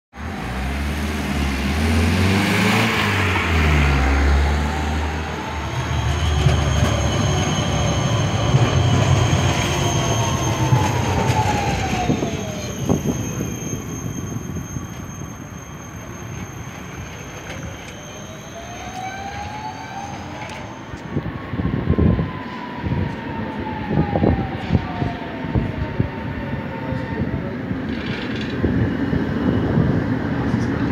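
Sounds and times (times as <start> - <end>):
tram wheels rumbling on rails: 0.2 - 30.9
tram whine gliding in pitch: 0.2 - 30.9.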